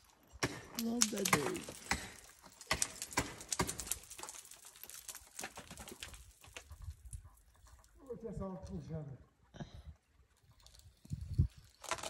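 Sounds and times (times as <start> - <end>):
climbing tools striking ice: 0.0 - 6.6.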